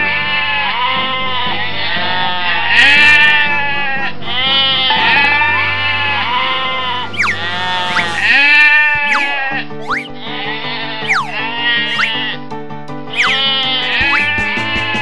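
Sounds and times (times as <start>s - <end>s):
children's music: 1.6s - 15.0s
bleat-like call: 2.7s - 12.2s, 13.2s - 15.0s
low drone: 2.8s - 10.1s
rising whistle-like glide: 3.2s - 10.2s, 11.1s - 12.2s, 13.2s - 14.3s.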